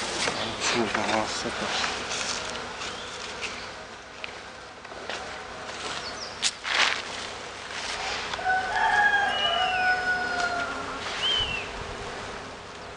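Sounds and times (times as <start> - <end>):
rooster crowing: 8.4 - 11.1.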